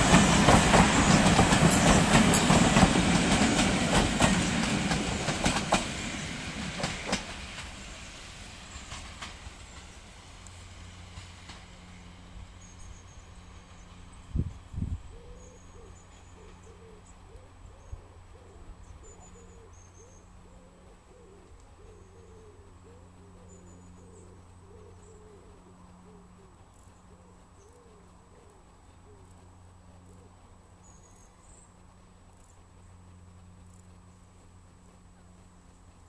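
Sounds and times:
diesel train rumbling: 0.0s - 21.1s
small birds chirping: 12.0s - 36.0s
dove cooing: 15.1s - 30.5s.

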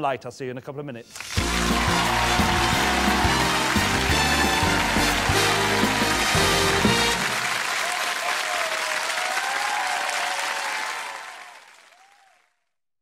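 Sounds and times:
music: 1.1s - 7.8s
audience applauding and cheering: 1.1s - 12.6s.

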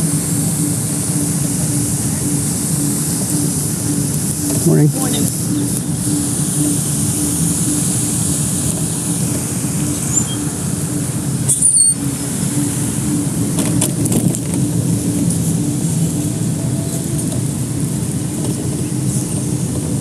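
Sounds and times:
mobility scooter motor hum: 0.0s - 20.0s
brief high squeak: 10.1s - 10.5s.

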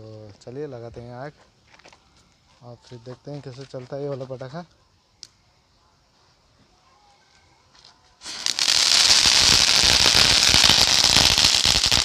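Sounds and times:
fireworks hissing and crackling: 8.2s - 12.0s.

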